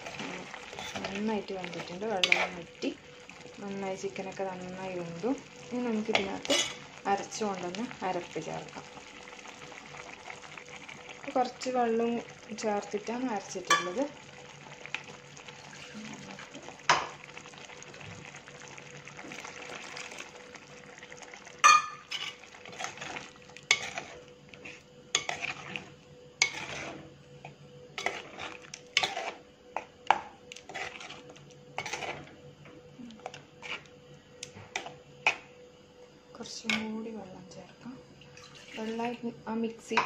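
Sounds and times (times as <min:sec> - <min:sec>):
curry sizzling: 0:00.0 - 0:35.5
ladle scraping and knocking pot: 0:02.2 - 0:02.6, 0:26.4 - 0:27.0, 0:28.0 - 0:29.4.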